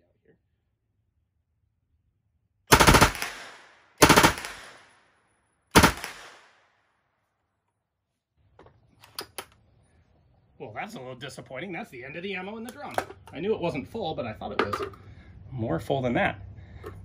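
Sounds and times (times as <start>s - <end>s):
submachine gun bursts: 2.7s - 4.8s, 5.7s - 6.4s.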